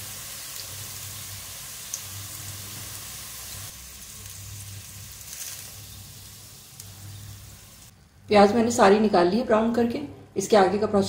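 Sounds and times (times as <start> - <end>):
hot oil sizzling: 0.0 - 7.9.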